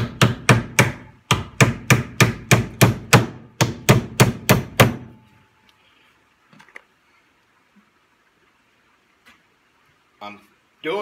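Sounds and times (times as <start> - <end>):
hammer driving nails into wood: 0.0 - 5.2.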